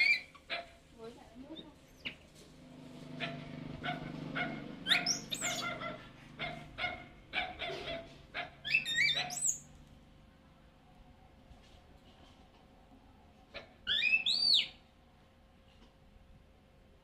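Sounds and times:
baby monkey squealing: 0.0 - 0.6, 4.8 - 5.9, 8.6 - 9.6, 13.8 - 14.7.

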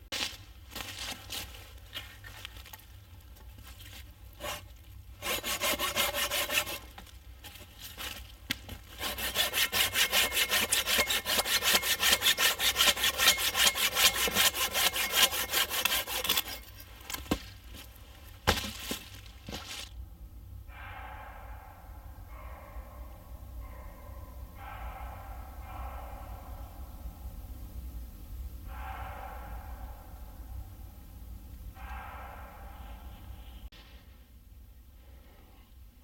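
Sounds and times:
hand saw cutting wood: 4.4 - 17.4.

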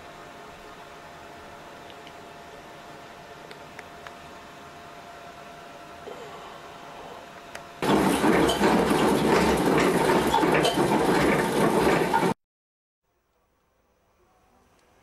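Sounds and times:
steady low hum: 0.0 - 7.9
coal feeder grinding: 7.8 - 12.4.

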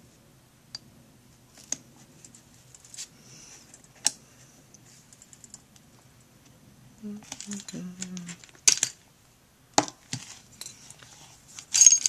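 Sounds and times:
handling noises: 7.2 - 9.0, 9.8 - 12.0.

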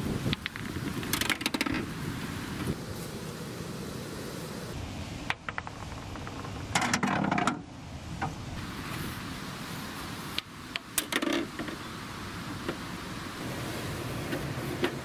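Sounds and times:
balls rolling on concrete: 0.2 - 2.0, 5.2 - 8.3.

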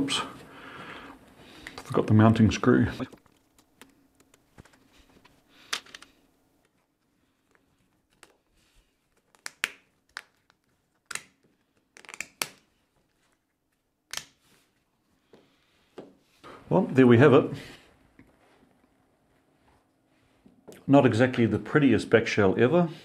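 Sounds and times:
plastic parts clicking and tapping: 3.1 - 6.8.

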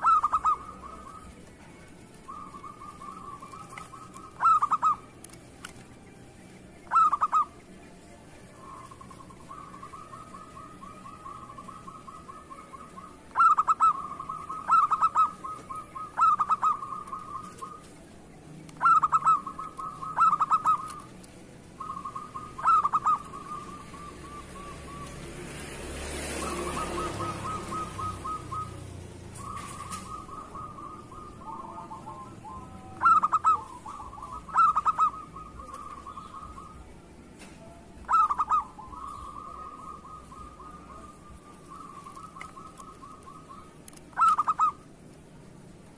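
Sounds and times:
dove cooing: 0.0 - 5.9, 6.8 - 45.0.

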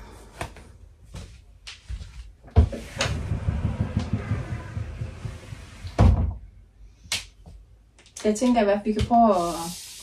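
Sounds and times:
rumbling and rustling handling noise: 0.2 - 6.5
cupboard knocking: 2.6 - 6.4.

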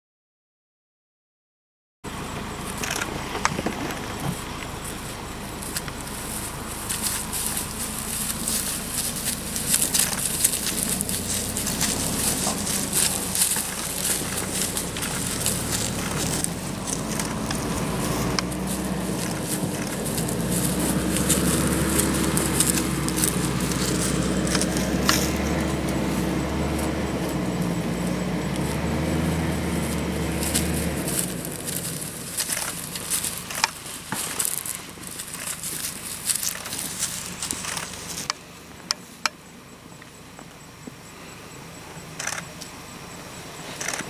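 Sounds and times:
vehicle engine idling: 2.1 - 44.0
paws crackling through dry grass: 4.1 - 39.2.

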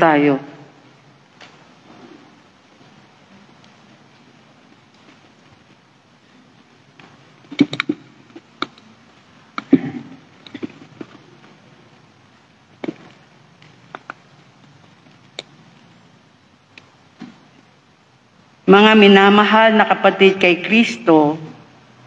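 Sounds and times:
faint room hiss: 0.0 - 22.0
microphone being handled: 9.6 - 11.6.

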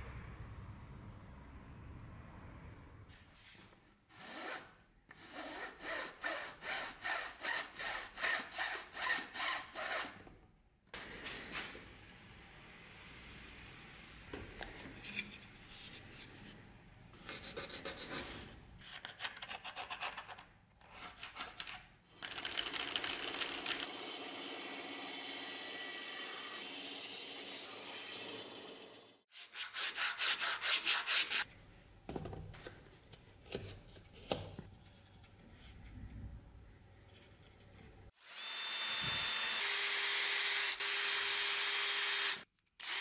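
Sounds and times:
bandsaw cutting wood: 4.2 - 10.2, 22.8 - 31.4.

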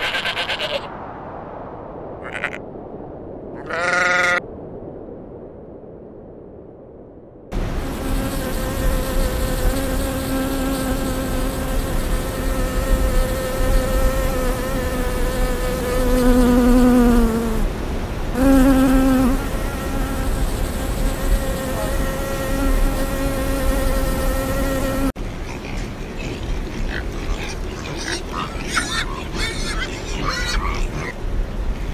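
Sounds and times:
honeybee buzzing: 7.8 - 17.7, 18.4 - 25.2.

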